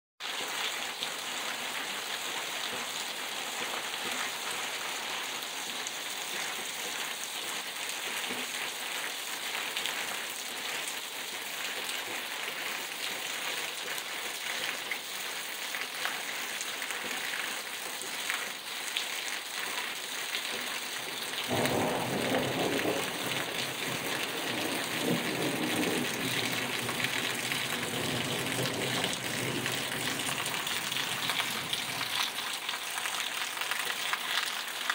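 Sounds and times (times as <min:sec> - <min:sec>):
heavy rain on pavement: 0:00.2 - 0:34.9.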